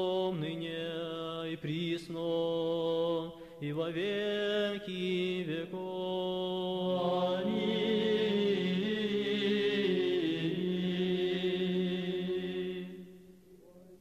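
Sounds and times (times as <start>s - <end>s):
men's choir singing: 4.0s - 13.2s.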